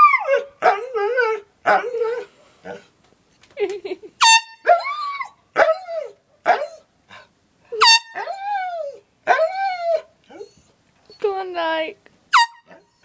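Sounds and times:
dog howling: 8.2 - 10.6.

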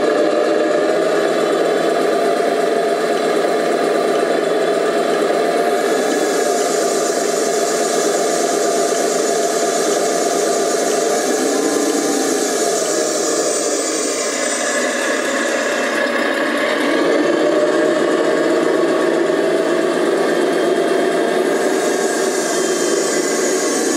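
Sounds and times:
toy truck motor whirring: 0.0 - 23.9.

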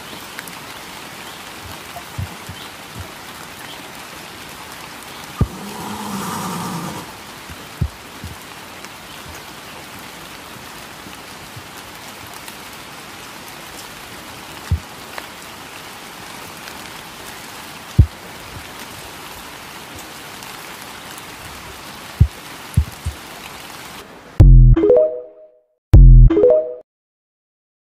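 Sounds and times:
rain falling on wet ground: 0.0 - 24.4.

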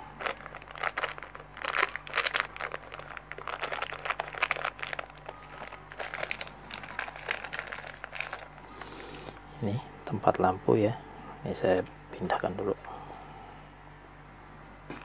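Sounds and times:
packaging crinkling and rustling: 0.0 - 9.4.

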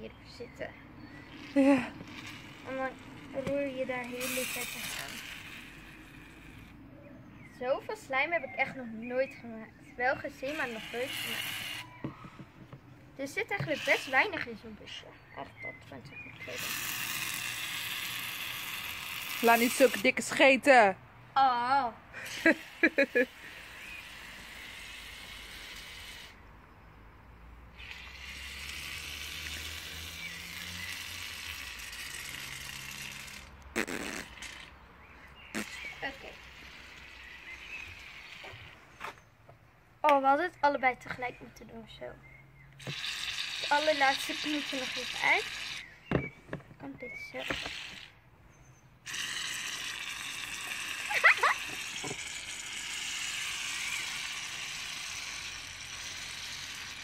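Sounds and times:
aerosol can hissing: 1.4 - 6.6, 10.4 - 12.0, 16.4 - 20.1, 27.8 - 34.6, 42.9 - 45.8, 49.1 - 57.0.

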